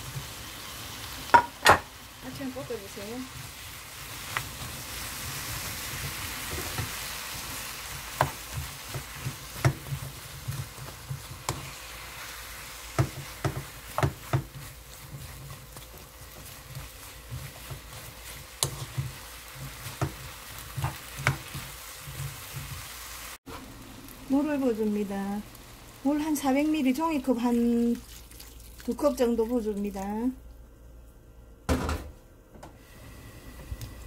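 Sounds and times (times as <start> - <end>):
food sizzling in a pan: 0.0 - 30.0
wooden spoon knocking against pan: 13.0 - 14.6.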